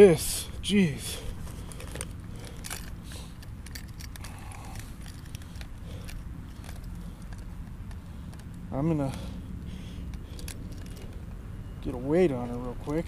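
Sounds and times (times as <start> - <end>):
low outdoor rumble: 0.0 - 13.0
small clicks and crackles: 1.4 - 9.3, 10.1 - 11.4.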